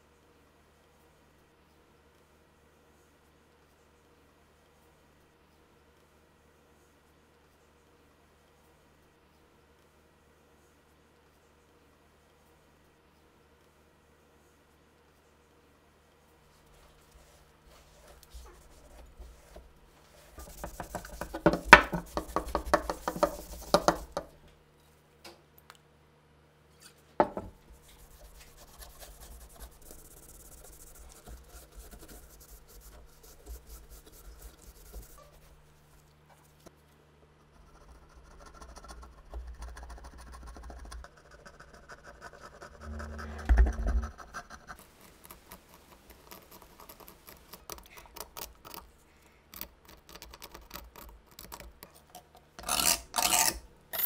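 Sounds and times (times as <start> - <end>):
quiet rubbing: 16.5 - 24.5, 27.6 - 36.6, 42.6 - 47.6
scratching and clicking: 17.8 - 24.5, 27.8 - 36.8, 37.4 - 54.0.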